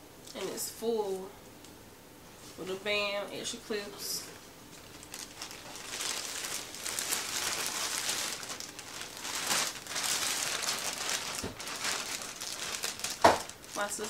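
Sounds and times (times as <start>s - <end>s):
plastic bag crinkling: 4.2s - 14.0s.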